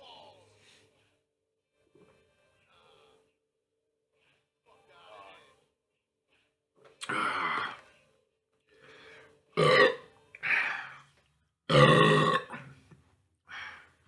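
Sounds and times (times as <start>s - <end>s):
man belching: 9.6s - 10.1s, 11.7s - 12.7s.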